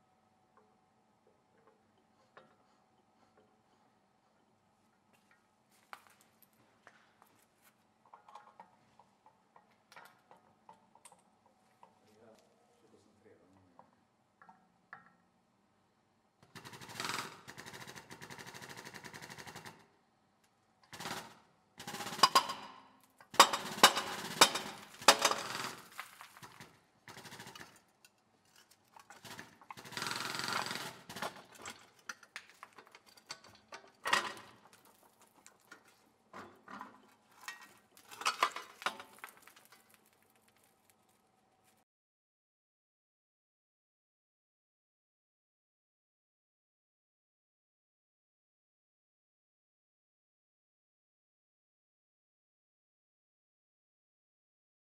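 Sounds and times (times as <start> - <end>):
hydraulic puller rattling: 23.3 - 39.3
bearing housing cracking loudly: 23.3 - 41.3
metal scraping and creaking: 23.4 - 41.1.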